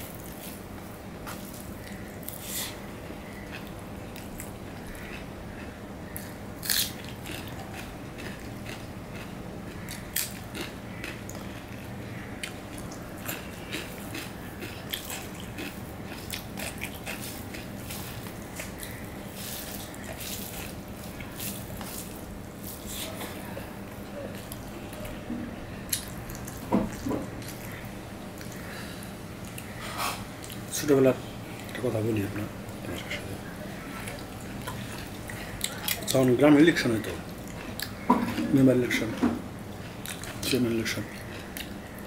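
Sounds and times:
eating by mouth: 0.0s - 36.4s, 37.0s - 42.0s
hand mixing rice and curry: 13.4s - 24.5s.

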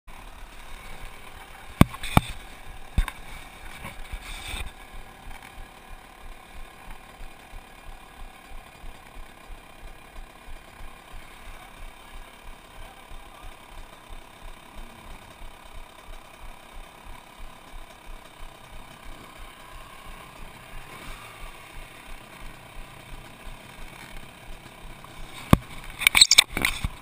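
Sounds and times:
faint even pulsing: 0.2s - 27.0s
scraping rub on camera: 3.1s - 4.8s.

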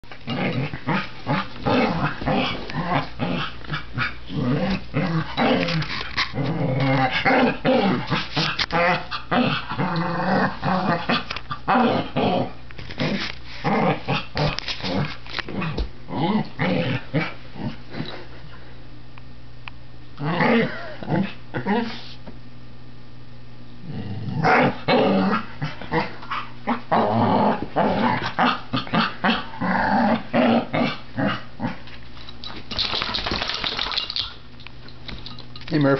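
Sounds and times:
puppy growling in play: 0.1s - 18.5s, 20.2s - 22.1s, 23.8s - 31.9s.

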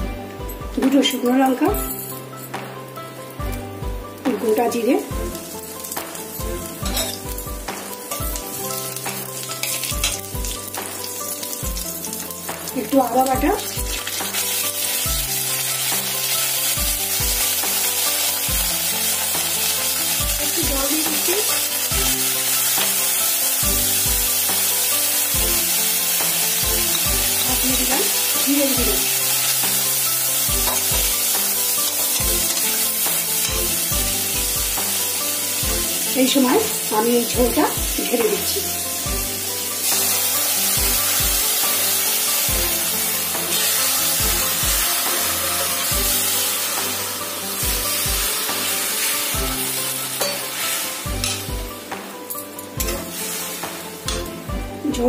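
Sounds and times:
spices sizzling in hot oil: 0.4s - 55.0s
metal spatula scraping pan: 5.3s - 12.4s, 42.9s - 51.5s
spatula scraping a pan: 39.9s - 51.5s.

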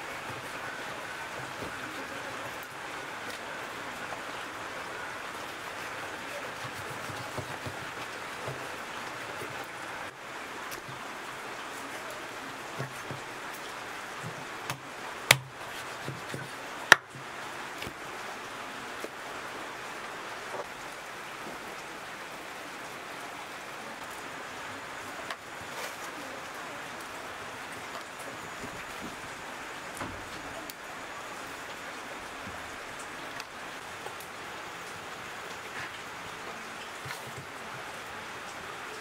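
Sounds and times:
cleaver chopping on wooden block: 14.7s - 15.5s, 16.1s - 17.1s.

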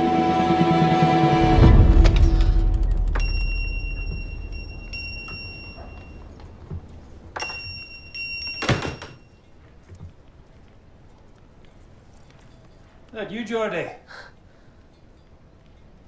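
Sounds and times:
thud: 1.6s - 6.9s
shop-door bell ringing: 2.9s - 9.7s.

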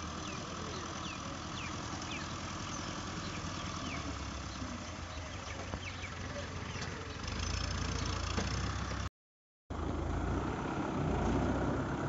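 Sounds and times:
tractor diesel engine running: 0.0s - 9.1s.

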